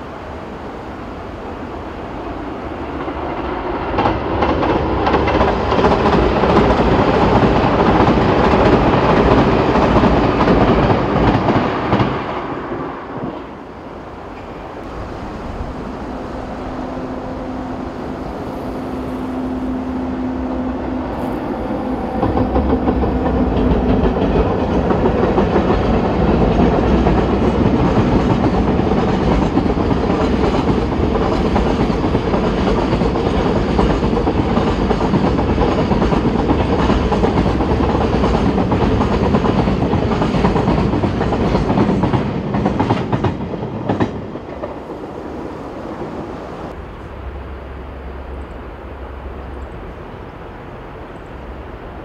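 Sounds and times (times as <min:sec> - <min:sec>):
electric locomotive hum: 0:00.0 - 0:52.0.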